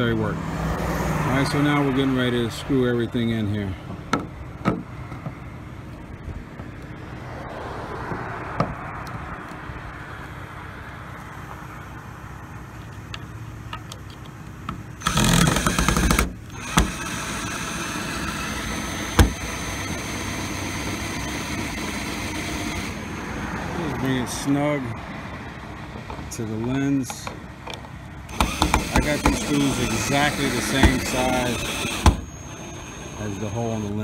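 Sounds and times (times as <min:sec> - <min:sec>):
engine-like hum: 0:00.0 - 0:34.0
steady background noise: 0:00.0 - 0:34.0
screwdriver clicking on plastic: 0:27.7 - 0:32.3.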